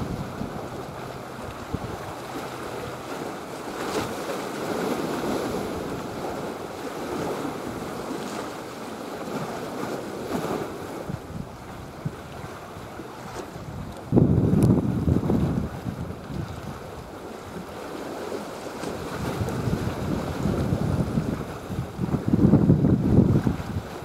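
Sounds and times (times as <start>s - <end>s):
wind buffeting microphone: 0.0s - 8.6s, 9.3s - 17.9s, 18.6s - 24.0s
choppy sea water: 0.0s - 24.0s.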